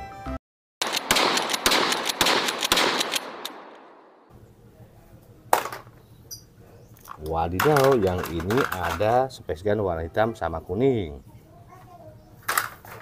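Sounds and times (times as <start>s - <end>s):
shotgun shots with echo: 0.8s - 4.3s
sharp click: 3.0s - 3.9s.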